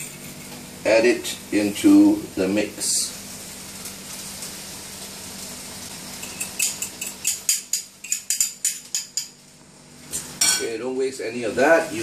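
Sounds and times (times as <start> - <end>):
spoon clinking against bowl: 6.2 - 9.4.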